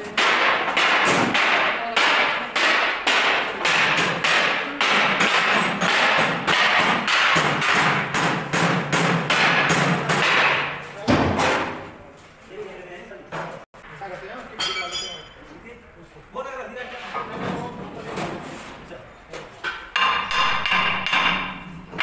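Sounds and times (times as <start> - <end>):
hammering on steel: 0.0 - 11.9, 19.7 - 22.0.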